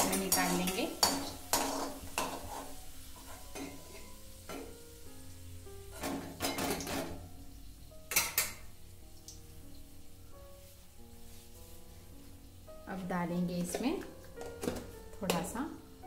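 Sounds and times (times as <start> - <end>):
metal spoon scraping a pan: 0.0 - 4.7
faint background music: 0.0 - 16.0
oil sizzling: 0.0 - 16.0.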